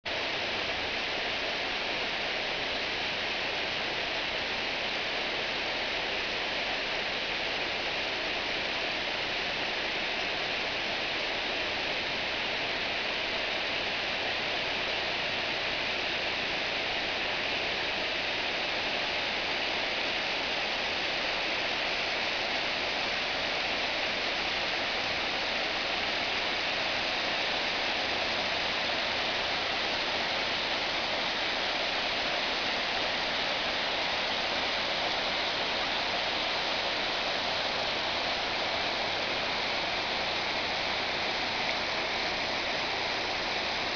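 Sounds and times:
creek running over rocks: 24.3s - 43.9s.

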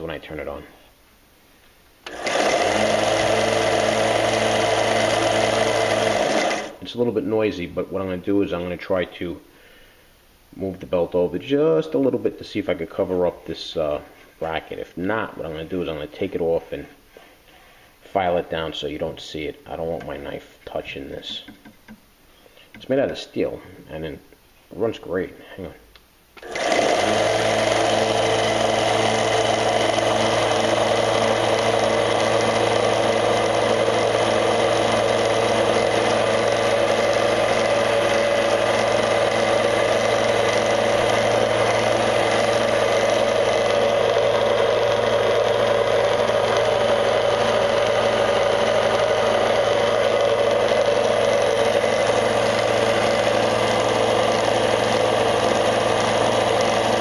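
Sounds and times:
belt sander running: 2.0s - 6.8s, 26.4s - 57.0s.

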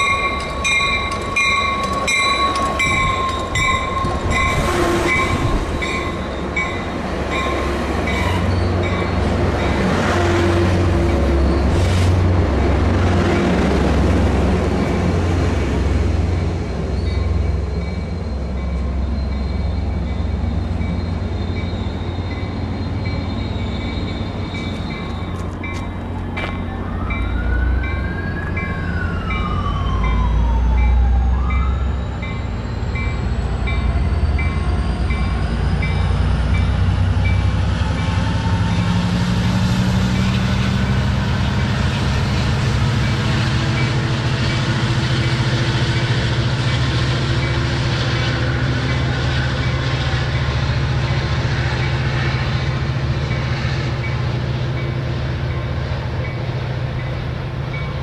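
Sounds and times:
train bell dinging: 0.0s - 9.9s, 16.4s - 38.2s, 42.8s - 58.0s
diesel locomotive engine rumbling: 0.0s - 58.0s
train wheels rolling on rails: 0.0s - 58.0s.

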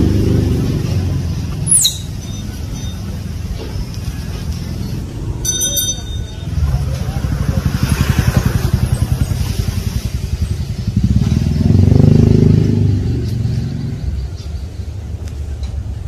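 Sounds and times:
vehicle engine passing: 0.0s - 15.1s.

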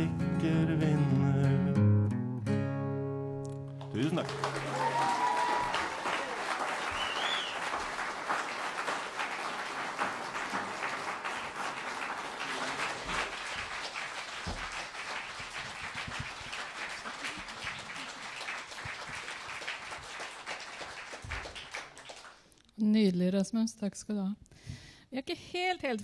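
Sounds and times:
audience applauding: 3.8s - 22.5s.

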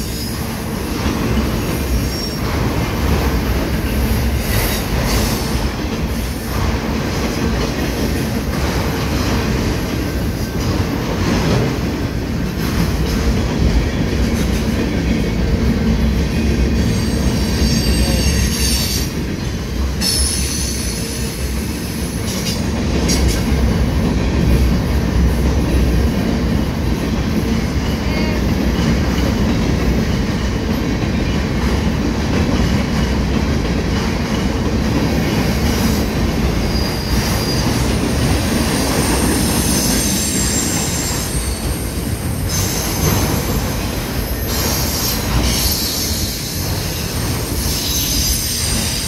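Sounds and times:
train wheels rumbling on rail: 0.0s - 49.0s
high-pitched wheel squeal: 38.8s - 43.0s.

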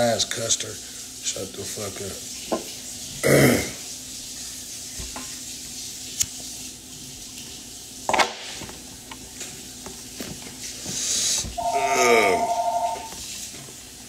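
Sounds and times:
man's short loud vocal sound: 11.6s - 12.8s.

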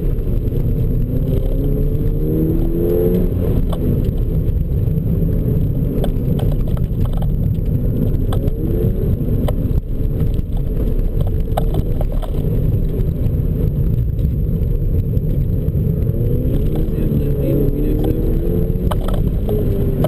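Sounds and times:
car engine accelerating and slowing: 0.0s - 20.0s
low rumble: 0.0s - 20.0s
sharp clicks or knocks: 18.8s - 19.8s.

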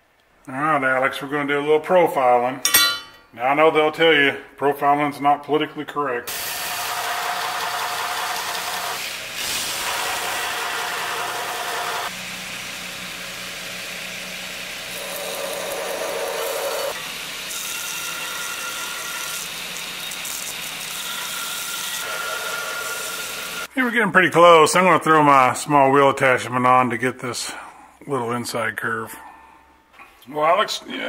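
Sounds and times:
belt grinder grinding metal: 6.3s - 12.1s, 14.8s - 23.7s.

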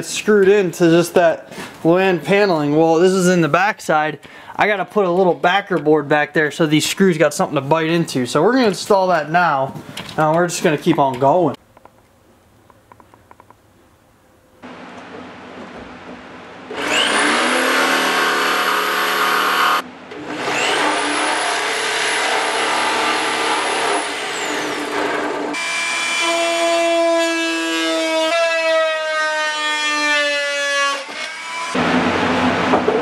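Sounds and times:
jigsaw cutting plywood: 16.7s - 26.0s.

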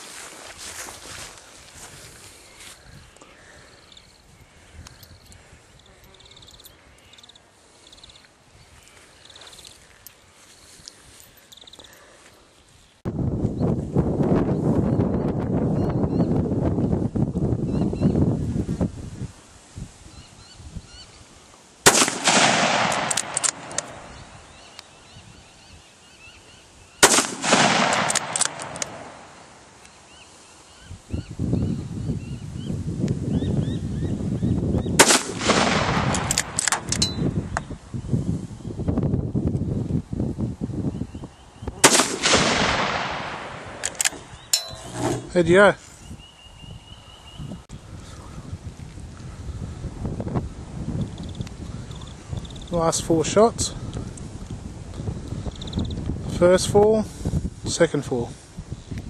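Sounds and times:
insects chirping in trills: 0.7s - 13.0s, 22.7s - 27.1s, 50.9s - 52.7s, 55.3s - 56.0s
wind on microphone: 13.0s - 21.4s, 22.0s - 26.0s, 30.8s - 59.0s
rifle shots with echo: 21.9s - 24.1s, 27.0s - 29.4s, 35.0s - 37.0s, 41.8s - 44.3s.

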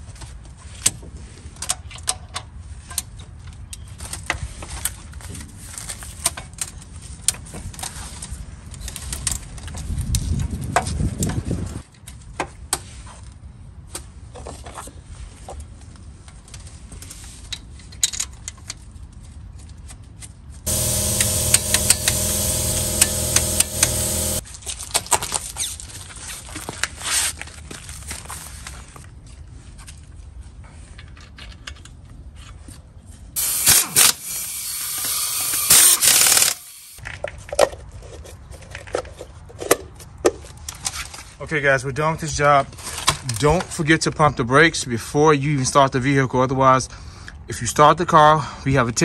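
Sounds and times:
power tool running: 20.7s - 24.4s, 33.4s - 37.0s.

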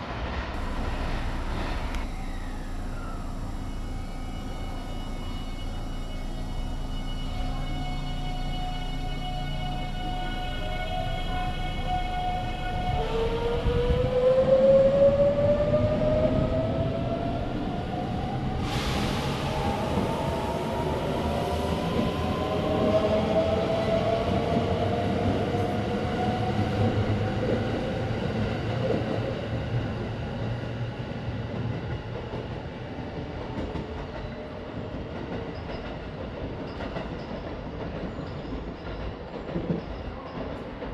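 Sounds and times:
train wheel rumble and clatter: 10.5s - 40.9s.

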